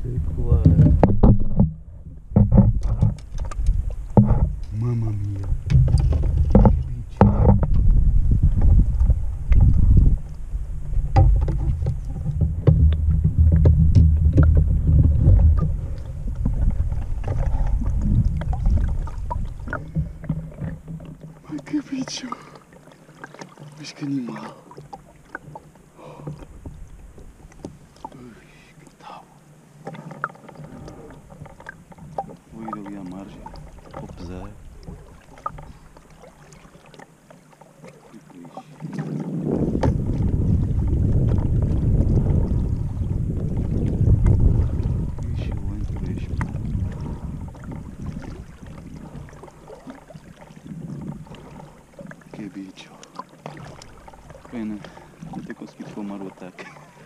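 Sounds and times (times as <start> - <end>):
wind buffeting microphone: 0.0 - 21.8, 38.8 - 52.7
gear clattering in boat: 0.0 - 22.2, 29.7 - 57.0.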